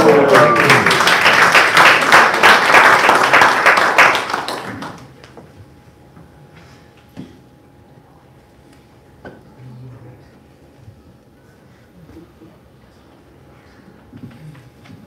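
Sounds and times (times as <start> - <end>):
congregation applauding: 0.0 - 5.4.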